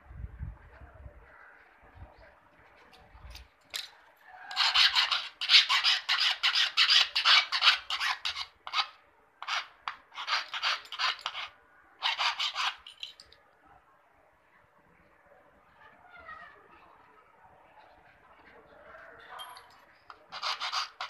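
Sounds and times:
file rasping on metal: 0:04.5 - 0:12.8, 0:20.1 - 0:21.0.

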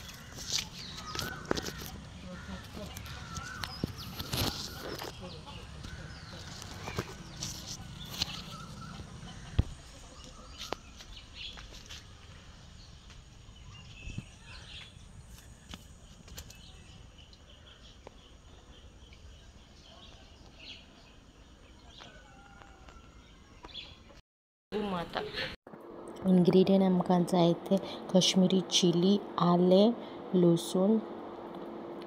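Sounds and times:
bird chirps: 0:02.9 - 0:11.6.

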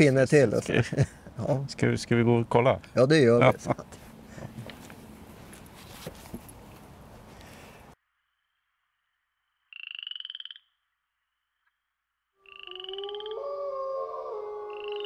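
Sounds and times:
outdoor background noise: 0:00.0 - 0:15.0
pulsed rising croak-like call: 0:12.4 - 0:15.0.

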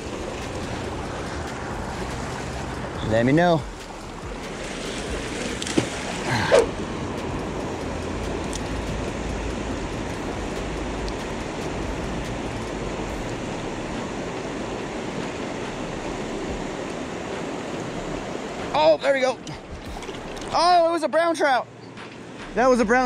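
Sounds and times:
mountain creek rushing over rocks: 0:00.0 - 0:21.6.

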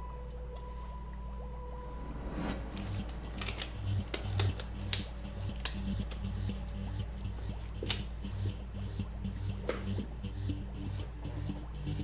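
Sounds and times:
low droning background music: 0:00.0 - 0:12.0
sharp clicks and taps: 0:02.9 - 0:11.8.

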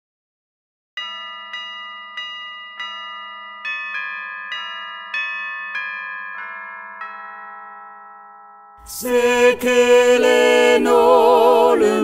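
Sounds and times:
bell-like chimes: 0:01.0 - 0:09.2.

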